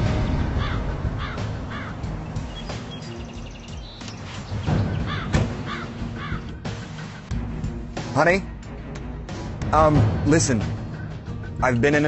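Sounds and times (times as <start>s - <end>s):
crows cawing: 0.6s - 2.6s, 4.7s - 6.6s.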